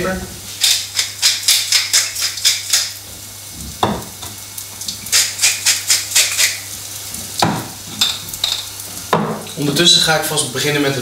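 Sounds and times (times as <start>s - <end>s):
food sizzling faintly in oil: 0.0s - 11.0s
spice mill grinding: 0.6s - 3.0s, 5.1s - 6.7s.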